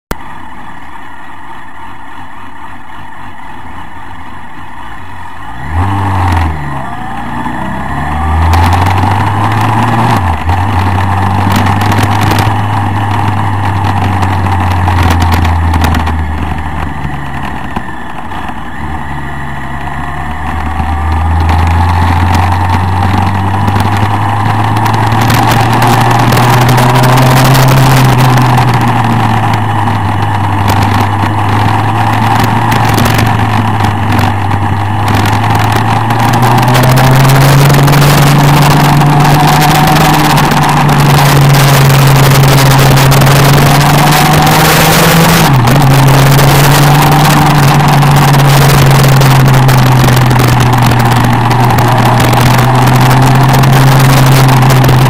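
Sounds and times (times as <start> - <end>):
motorcycle engine accelerating: 0.1 - 55.0
wind rush: 20.6 - 55.0.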